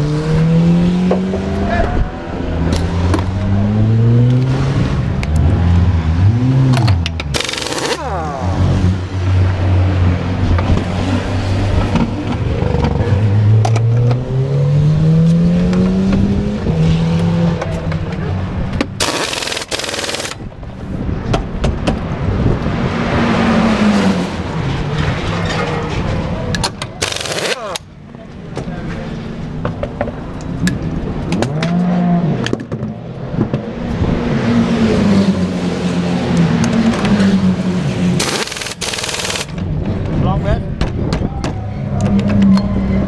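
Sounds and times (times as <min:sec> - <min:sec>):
pneumatic wheel gun rattling: 0:06.8 - 0:08.0, 0:18.9 - 0:20.5, 0:26.9 - 0:27.9, 0:38.2 - 0:39.6.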